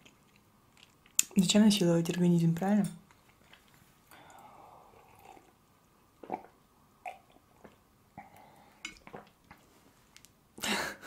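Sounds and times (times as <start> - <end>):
sipping and swallowing: 3.3 - 5.6, 6.2 - 9.6.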